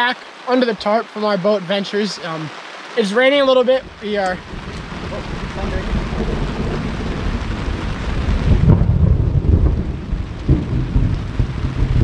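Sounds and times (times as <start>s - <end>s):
light rain: 0.0s - 12.0s
thunder rumbling: 3.4s - 12.0s.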